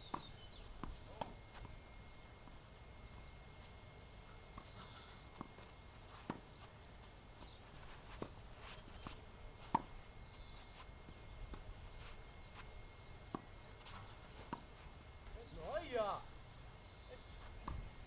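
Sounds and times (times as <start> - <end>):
tennis ball bouncing: 0.0 - 1.8, 4.5 - 11.7, 12.5 - 14.7, 17.5 - 17.9
tennis ball hit by rackets: 17.6 - 17.8.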